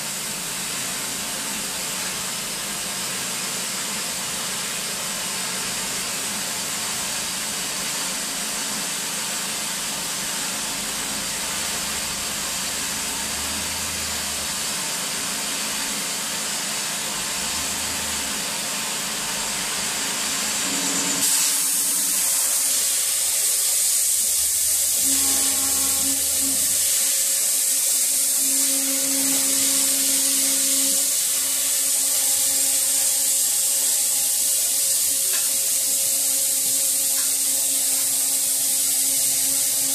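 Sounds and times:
cutting torch flame hissing: 20.2 - 39.9.

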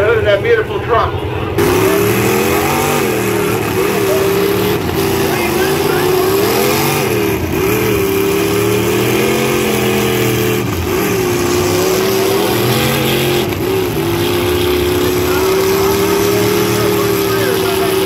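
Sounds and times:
truck engines revving hard: 0.0 - 18.0.

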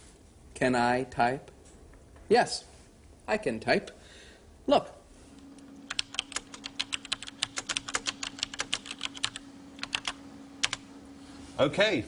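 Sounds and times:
faint steady hum: 0.0 - 12.0
computer keyboard typing: 5.8 - 10.8.

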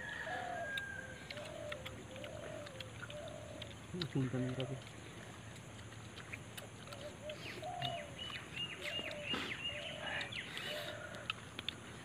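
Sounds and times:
birds chirping high: 0.0 - 12.0
lower short bird calls: 6.9 - 11.3.

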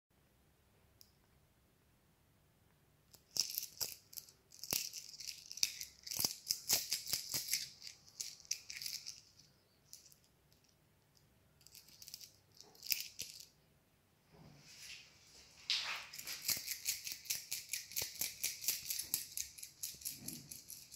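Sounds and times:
coins jingling when shaken: 16.2 - 20.9.

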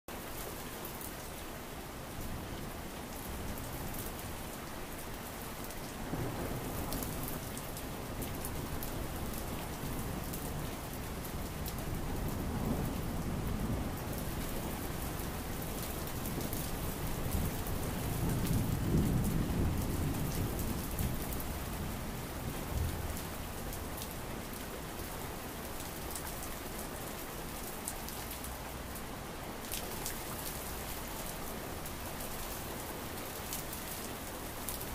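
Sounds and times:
rain pattering: 0.1 - 34.9
low rumbles of thunder: 6.0 - 24.7.

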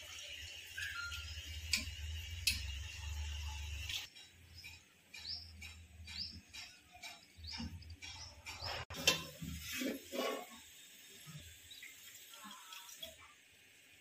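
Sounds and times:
small bird chirping: 4.5 - 8.8.

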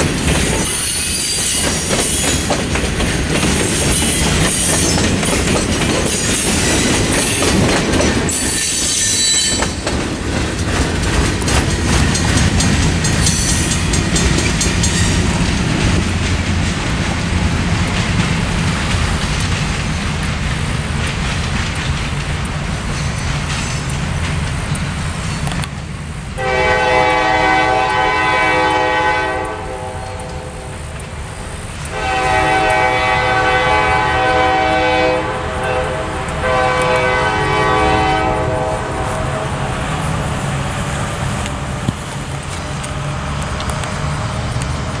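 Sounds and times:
locomotive air horn blasts: 26.4 - 30.7, 31.9 - 39.9.

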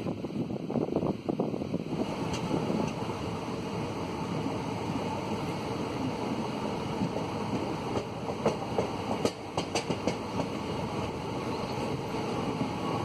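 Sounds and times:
train wheels rumbling on rails: 0.0 - 13.0
wheels clacking over track: 7.0 - 10.6.

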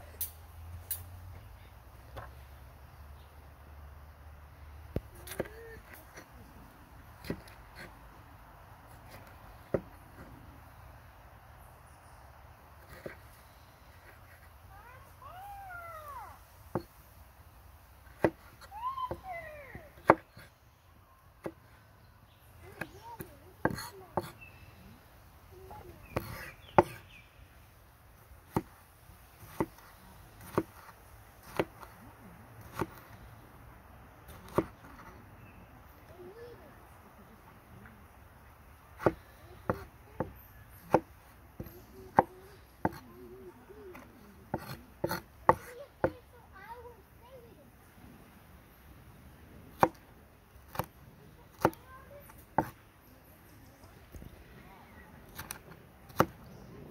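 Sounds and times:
knife striking wooden cutting board: 18.2 - 18.5, 20.0 - 20.4, 22.8 - 24.4, 26.1 - 27.0, 29.4 - 29.8, 30.4 - 31.9, 34.3 - 35.1, 39.0 - 43.1, 43.9 - 46.2, 49.8 - 50.0, 51.5 - 51.8, 52.6 - 52.8, 55.3 - 56.4.

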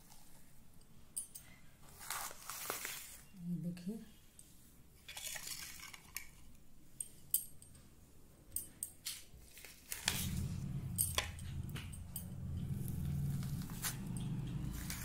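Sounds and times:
low steady rumble: 10.0 - 15.0.

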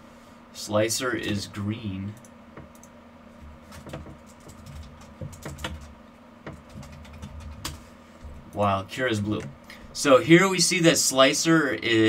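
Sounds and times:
keyboard typing: 3.6 - 5.9, 6.5 - 7.8.

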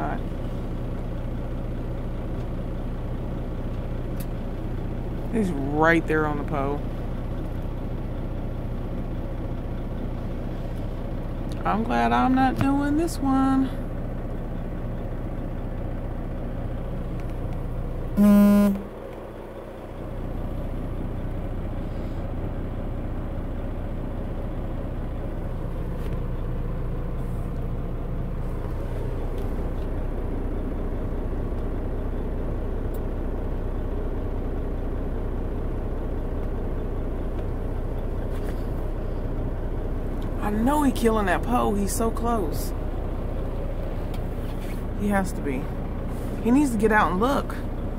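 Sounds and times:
diesel engine idling: 0.0 - 47.9
vehicle horn blast: 18.2 - 19.0.

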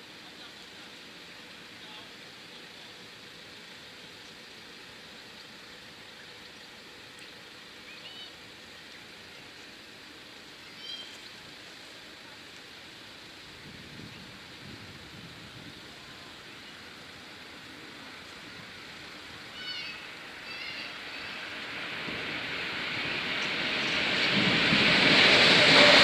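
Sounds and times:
outdoor background hiss: 0.0 - 26.0
bird chirps: 10.7 - 11.2.

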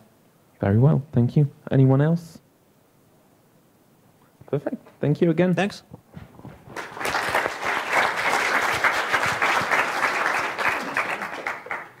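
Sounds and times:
audience applauding: 6.6 - 12.0.

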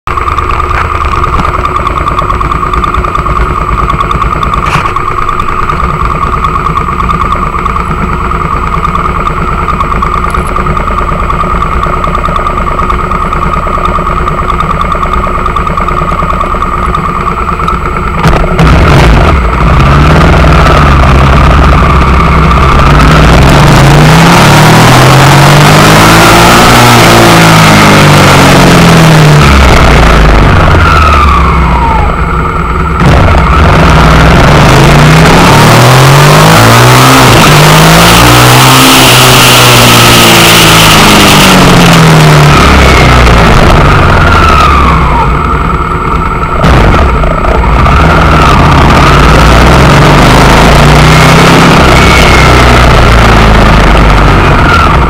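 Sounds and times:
motorcycle engine idling and revving: 0.0 - 55.0.

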